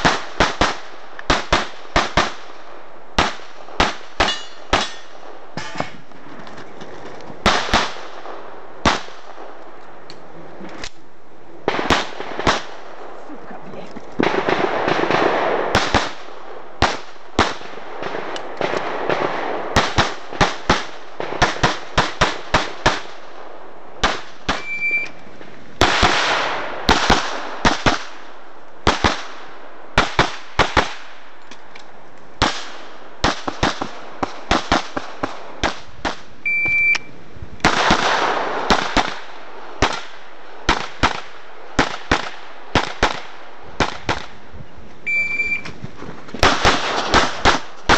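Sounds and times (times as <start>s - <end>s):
pistol shots: 0.0s - 2.6s, 3.2s - 5.8s, 7.4s - 9.6s, 14.2s - 23.2s, 24.0s - 25.0s, 25.8s - 28.2s, 28.8s - 31.1s, 32.4s - 36.3s, 37.6s - 44.4s, 46.4s - 47.9s.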